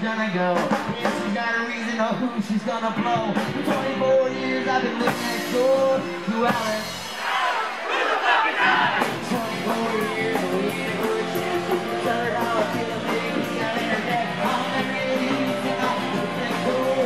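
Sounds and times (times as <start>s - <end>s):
live rock band playing: 0.0s - 7.4s, 8.8s - 17.0s
guitar strumming: 9.1s - 17.0s.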